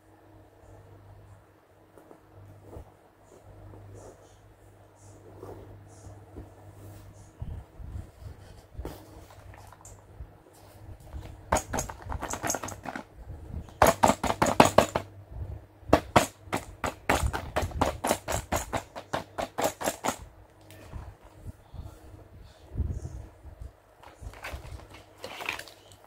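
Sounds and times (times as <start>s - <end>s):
plastic bag crinkling: 24.0s - 26.0s.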